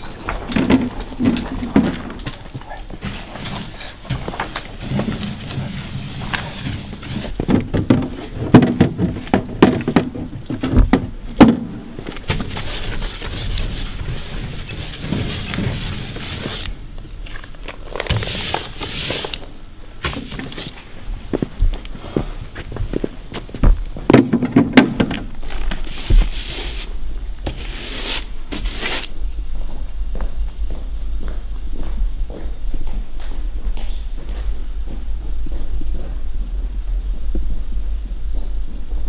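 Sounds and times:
paper rustling: 0.0s - 7.6s, 12.1s - 19.5s, 25.4s - 29.1s
footsteps: 0.0s - 39.0s.

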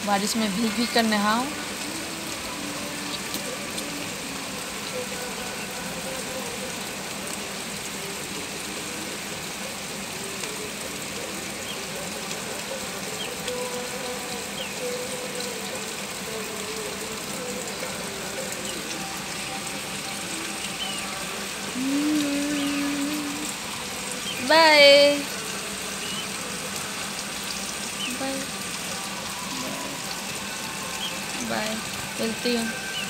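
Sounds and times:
heavy rain falling: 0.0s - 33.0s
person humming: 21.7s - 23.6s.

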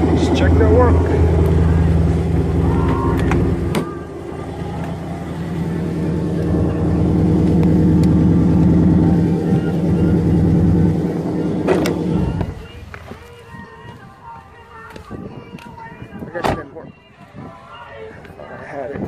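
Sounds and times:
car engine idling: 0.0s - 13.4s.

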